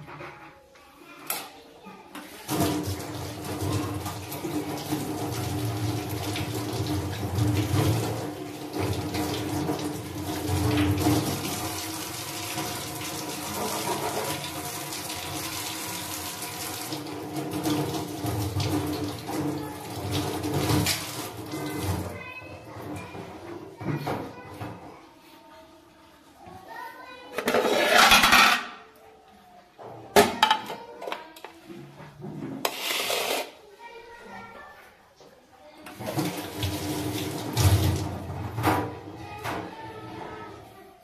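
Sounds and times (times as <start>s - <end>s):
tap water splashing into sink: 2.4s - 22.2s, 35.9s - 39.7s.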